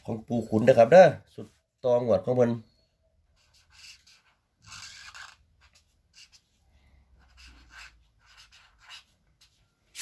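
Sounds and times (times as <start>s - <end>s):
marker writing on paper: 3.3s - 6.6s, 7.2s - 10.0s.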